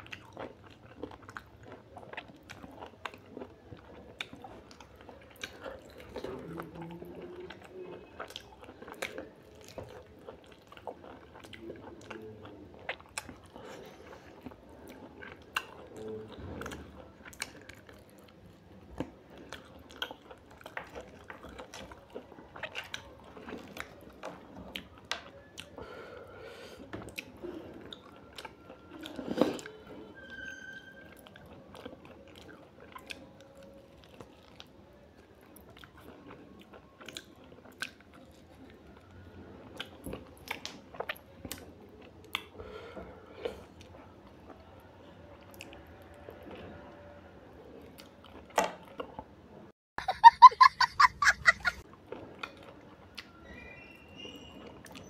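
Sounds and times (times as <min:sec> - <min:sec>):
person chewing and biting food: 0:00.0 - 0:18.3.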